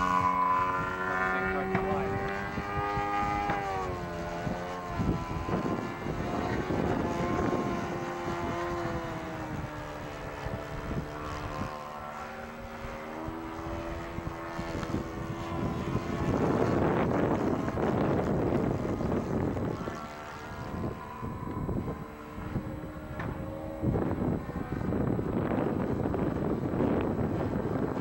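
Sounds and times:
model airplane engine: 0:00.0 - 0:28.0.

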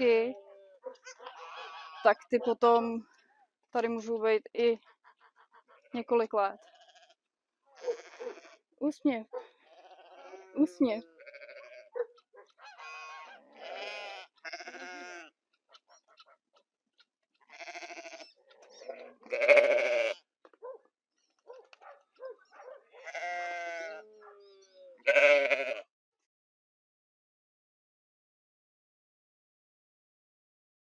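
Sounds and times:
goats and sheep bleating: 0:00.0 - 0:03.4, 0:04.8 - 0:08.7, 0:09.4 - 0:15.4, 0:17.4 - 0:20.3, 0:22.1 - 0:25.9.

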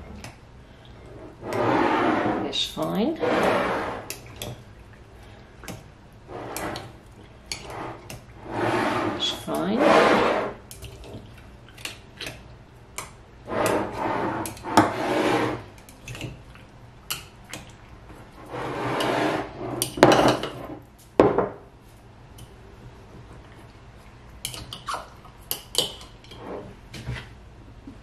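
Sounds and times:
stick scraping and squelching in jar: 0:06.3 - 0:12.4.

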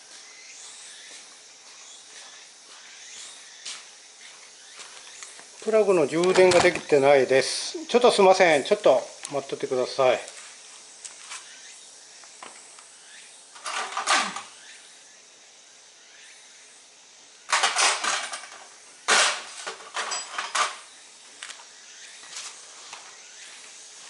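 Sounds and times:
clatter and rustling of parts: 0:13.6 - 0:14.5, 0:17.5 - 0:21.6.

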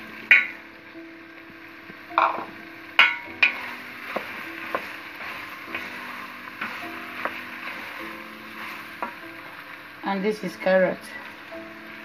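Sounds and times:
vegetables sizzling in oil: 0:00.0 - 0:12.0
spoon clacking on pot: 0:00.3 - 0:00.6, 0:02.2 - 0:05.0
wooden spoon stirring: 0:03.0 - 0:09.8.

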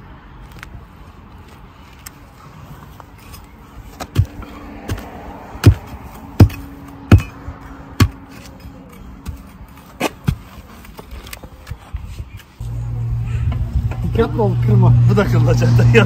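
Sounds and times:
shovel chopping into soil: 0:04.0 - 0:07.4.

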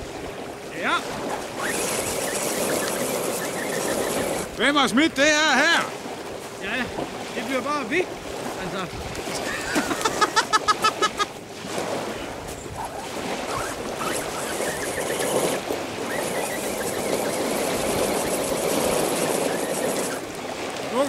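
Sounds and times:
water noise: 0:00.0 - 0:21.0
wind: 0:00.0 - 0:21.0
person laughing: 0:09.4 - 0:11.4.

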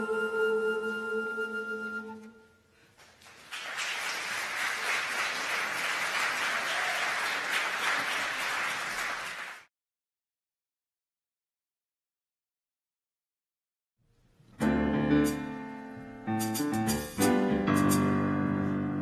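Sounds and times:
audience applauding: 0:02.9 - 0:09.7.

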